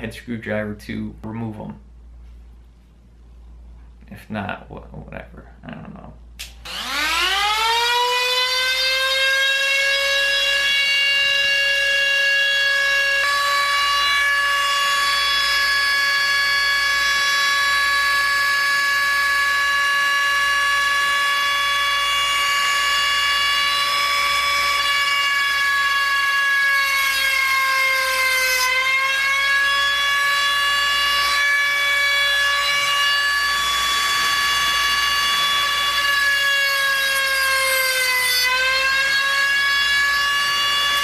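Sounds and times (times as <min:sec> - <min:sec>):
rotary tool high whine grinding: 0:06.6 - 0:09.5, 0:11.3 - 0:41.0.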